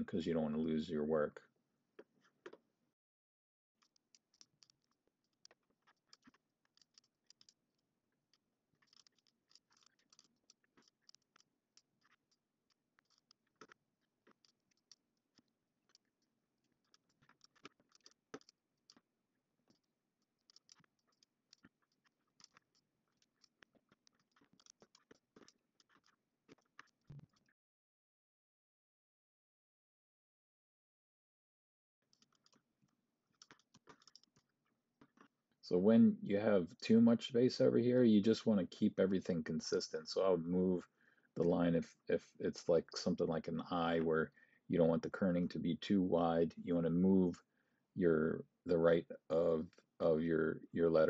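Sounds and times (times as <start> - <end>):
mouse and keyboard clicks: 8.8 - 16.2, 16.8 - 19.0, 19.7 - 27.5, 33.4 - 34.4.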